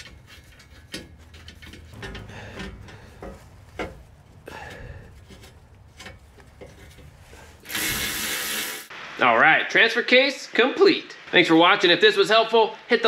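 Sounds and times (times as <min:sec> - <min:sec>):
metal plate scraping against frame: 0:00.0 - 0:08.8.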